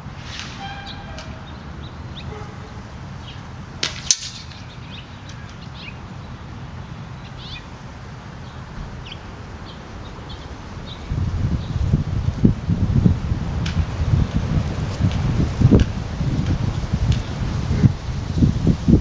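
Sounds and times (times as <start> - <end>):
small birds chirping: 4.4 - 12.1.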